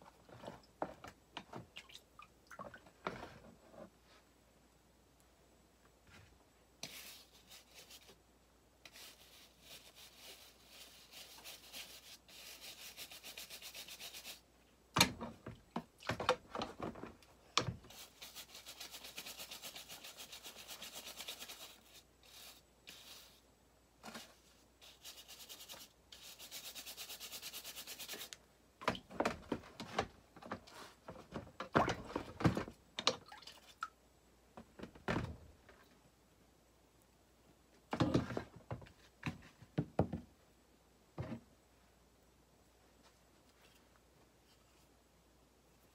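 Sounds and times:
brush scrubbing rust off metal: 8.8 - 14.5, 17.9 - 23.4, 24.8 - 28.4.

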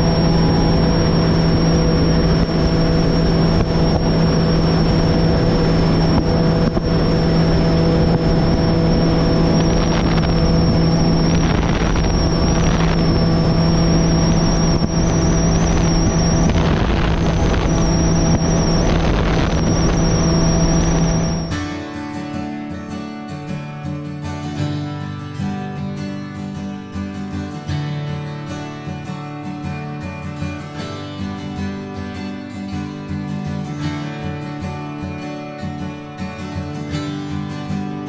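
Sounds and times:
outboard motor running: 0.0 - 21.6
wind and water rushing: 0.0 - 21.6.

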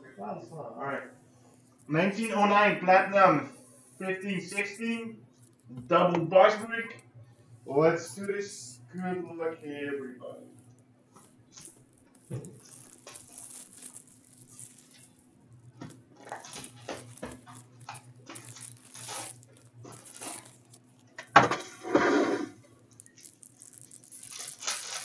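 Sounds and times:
low steady hum: 0.0 - 25.0
plastic wrap crinkling and tearing: 11.2 - 25.0.

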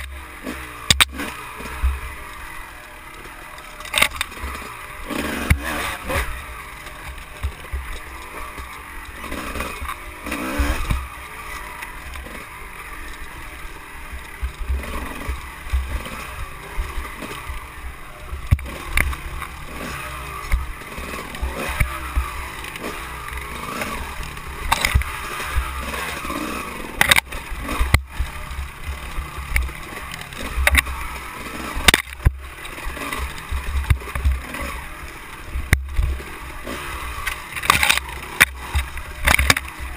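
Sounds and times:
dirt bike engine rumbling: 0.0 - 39.9
sharp knocks over bumps: 3.2 - 12.5, 18.3 - 34.7, 35.6 - 39.9.

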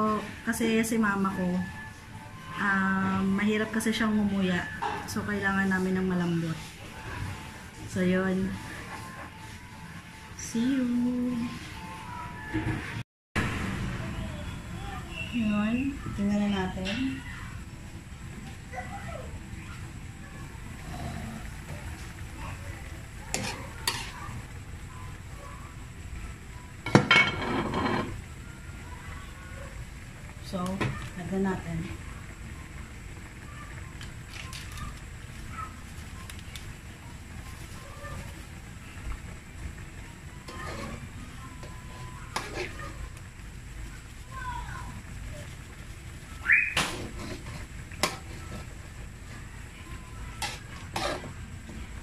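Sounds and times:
spoon scraping a metal pot: 23.3 - 24.2, 50.4 - 51.4.

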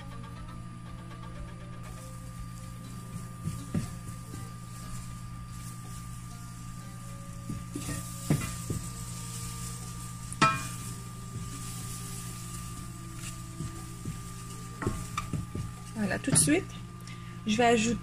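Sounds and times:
steady low hum: 0.0 - 18.0
butter sizzling: 1.8 - 17.0
wooden spoon stirring in saucepan: 2.0 - 16.7.

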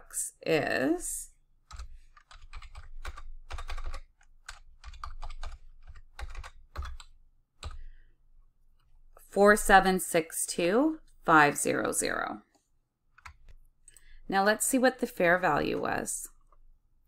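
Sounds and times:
typing on computer keyboard: 1.7 - 7.9, 13.2 - 13.6.

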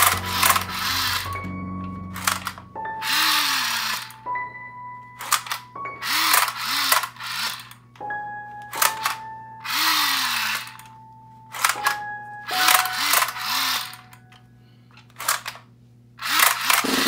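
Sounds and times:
toy gun electronic gunfire: 16.2 - 17.0.

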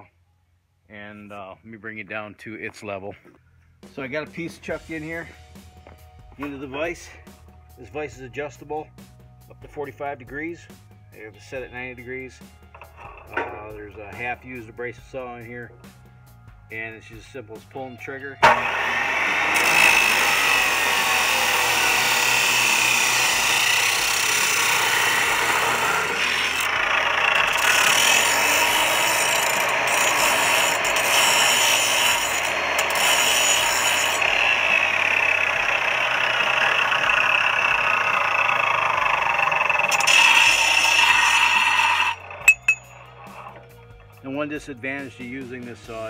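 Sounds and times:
metal burr ground on wheel: 11.2 - 15.9, 18.0 - 44.7
abrasive saw cutting steel tubing: 11.4 - 15.5, 18.0 - 44.6.

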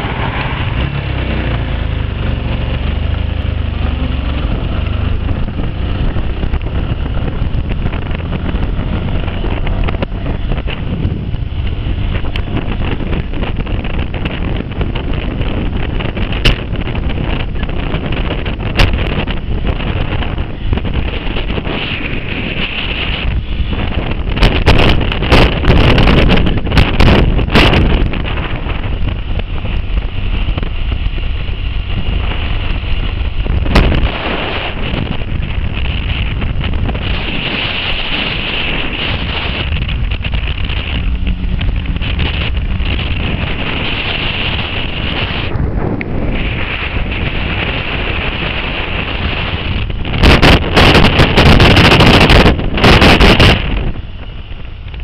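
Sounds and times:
motorcycle running: 0.0 - 55.0
wind buffeting microphone: 0.0 - 55.0
loud distorted blasts: 3.7 - 55.0.

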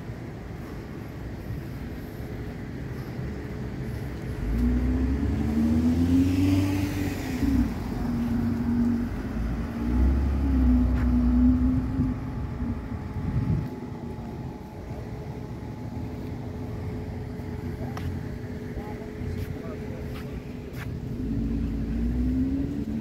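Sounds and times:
engine running: 0.0 - 23.0.

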